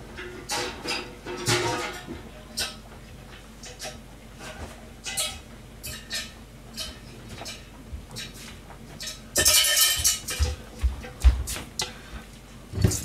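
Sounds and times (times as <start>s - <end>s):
pots and dishes clinking: 0.1s - 2.8s, 3.6s - 8.4s, 9.0s - 11.2s.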